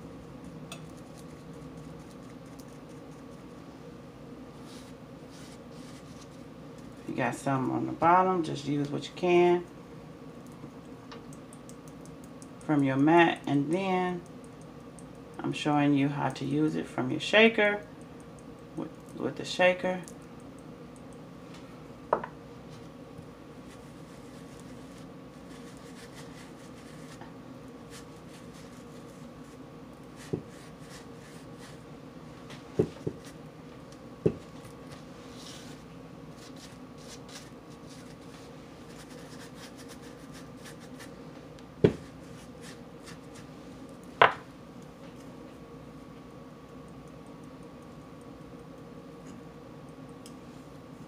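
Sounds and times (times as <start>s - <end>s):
faint steady hum: 0.0s - 51.0s.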